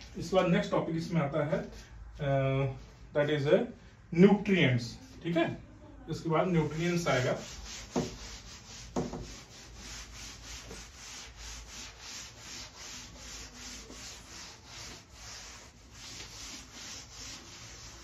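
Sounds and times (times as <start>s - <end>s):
cloth swishing on chalkboard: 6.6s - 18.0s.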